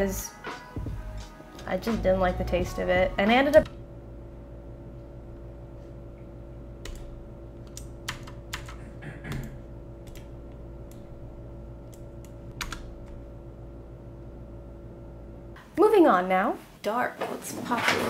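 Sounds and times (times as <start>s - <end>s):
steady hum: 0.0s - 16.9s
computer keyboard key presses: 6.8s - 10.3s, 11.9s - 12.9s.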